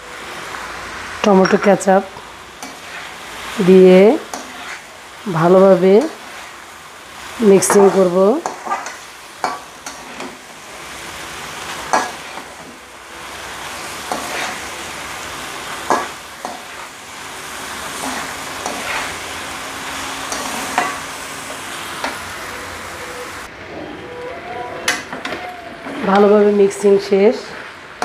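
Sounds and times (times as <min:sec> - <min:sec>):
food sizzling in a wok: 0:00.0 - 0:23.5, 0:25.8 - 0:28.0
spatula scraping and knocking pan: 0:07.6 - 0:10.5, 0:11.8 - 0:12.8, 0:18.0 - 0:19.2.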